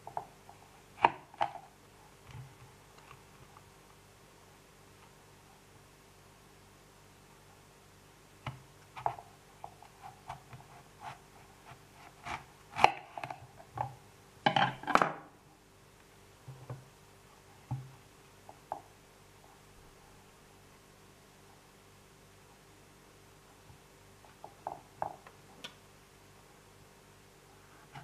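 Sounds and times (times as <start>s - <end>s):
knife cutting apple on board: 1.0s - 1.6s, 8.5s - 13.4s.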